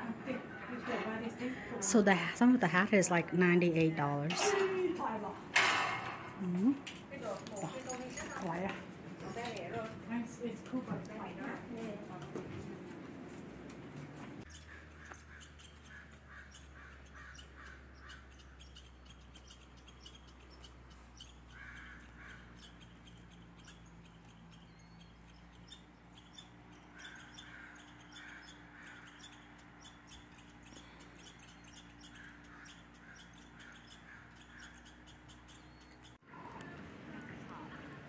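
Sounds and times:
bird calling: 14.4 - 38.0.

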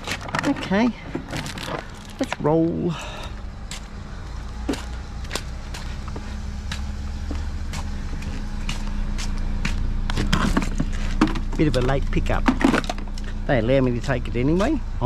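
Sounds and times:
vehicle engine idling: 0.0 - 15.0
footsteps on wet pavement: 3.0 - 12.0.

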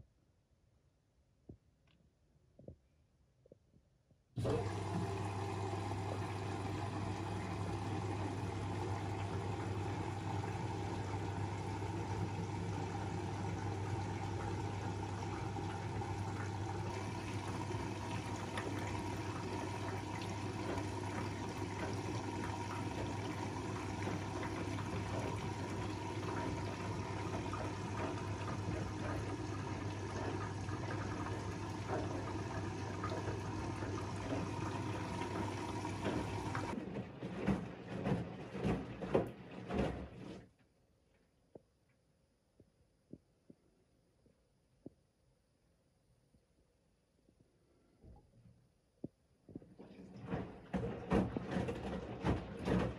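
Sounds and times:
washing machine drum sloshing: 4.4 - 40.5, 49.5 - 52.9.

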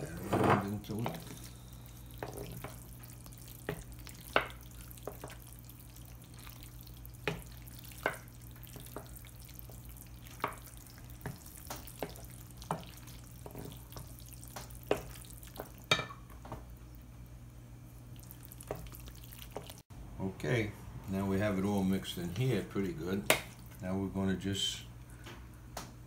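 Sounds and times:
spoon stirring thick food: 0.0 - 16.6, 18.2 - 19.8
steady low hum: 0.0 - 26.0.

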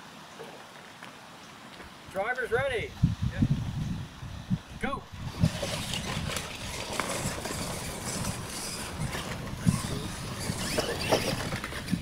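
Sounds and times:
toy trucks whirring: 5.2 - 12.0.

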